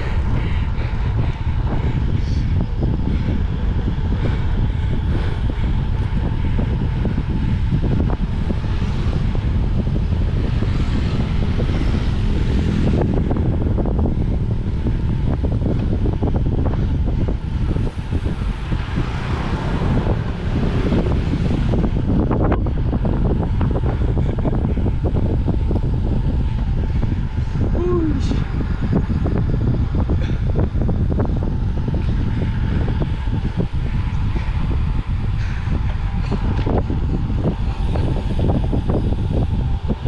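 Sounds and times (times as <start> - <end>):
wind buffeting microphone: 0.0 - 40.0.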